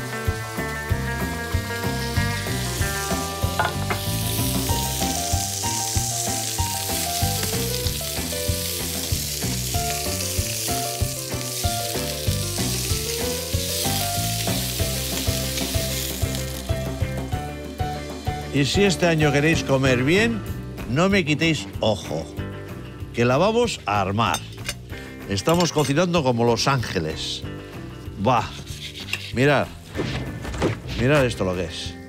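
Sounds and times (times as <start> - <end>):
fish sizzling in a frying pan: 0.0 - 19.4
background music with beat: 0.0 - 21.3.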